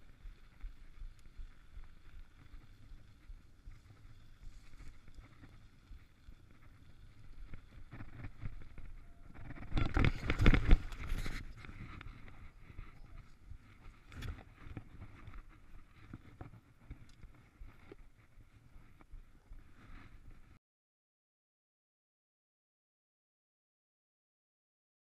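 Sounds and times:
bike tyres rolling on gravel: 0.0 - 19.0.

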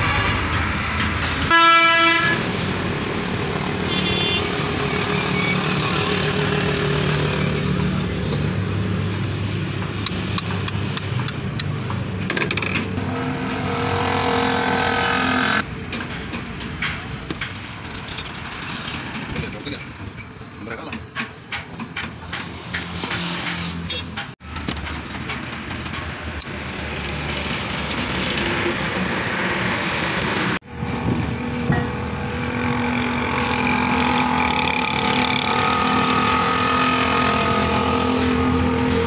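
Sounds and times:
loud horn-like tone: 1.4 - 2.5, 3.7 - 6.1, 33.8 - 39.0.

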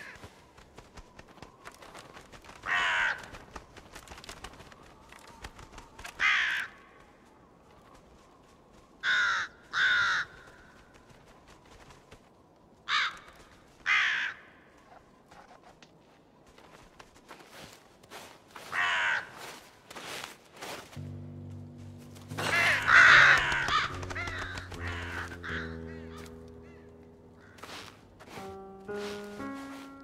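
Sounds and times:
crows cawing: 0.0 - 0.3, 2.4 - 3.6, 6.0 - 7.2, 9.0 - 11.0, 12.8 - 15.0, 18.6 - 20.2, 22.2 - 28.1.

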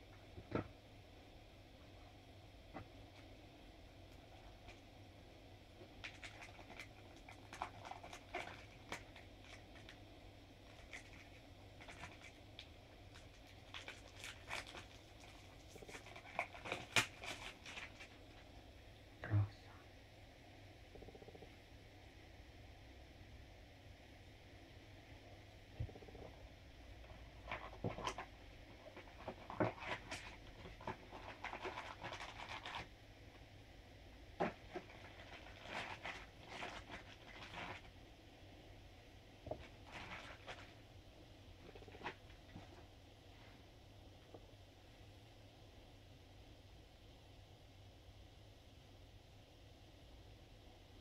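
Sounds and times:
plastic wrapping crinkling: 6.0 - 10.0, 10.7 - 18.4, 27.4 - 32.9, 34.4 - 37.9, 39.6 - 40.8.

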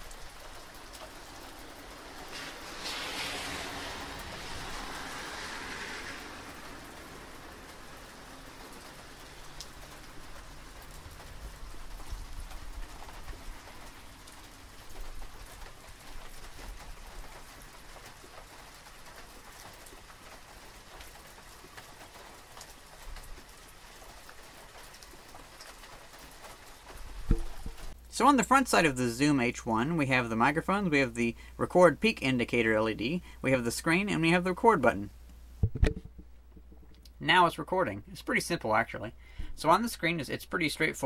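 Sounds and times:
rain on wet pavement: 0.0 - 35.4
water drips ticking: 7.5 - 33.1.

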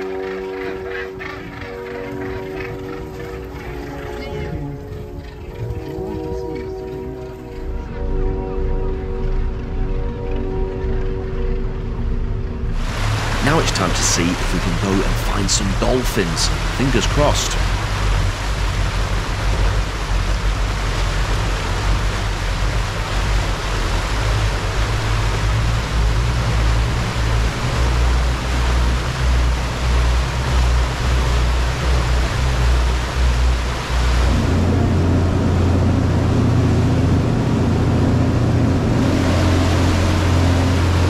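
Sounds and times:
boat engine hum: 0.0 - 41.0
wind and water rushing: 12.4 - 41.0.

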